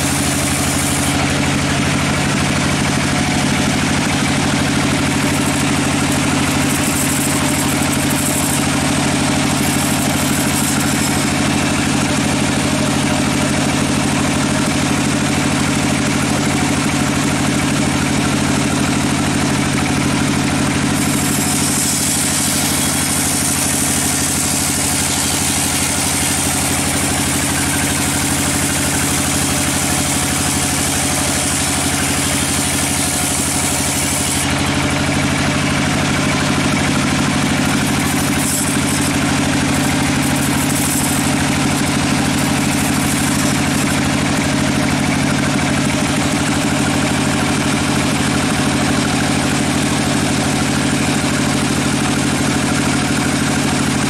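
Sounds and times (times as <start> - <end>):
machine drive drone: 0.0 - 13.0
band saw cutting log: 0.0 - 54.0.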